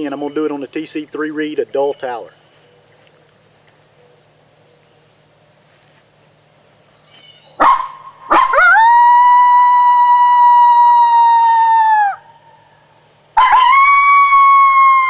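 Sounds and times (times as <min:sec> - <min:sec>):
coyote howl call: 0:07.3 - 0:15.0.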